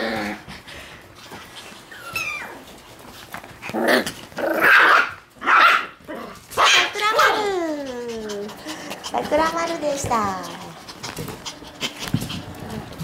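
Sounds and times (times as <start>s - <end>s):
puppies growling and yapping: 0.0s - 13.0s
puppy whining: 1.3s - 2.8s, 6.0s - 13.0s.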